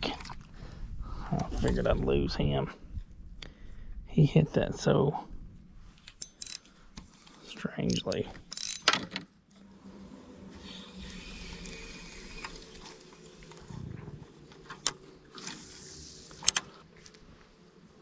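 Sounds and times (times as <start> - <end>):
fishing reel ticking hiss: 10.6 - 12.9
brief low rumble: 13.6 - 14.4.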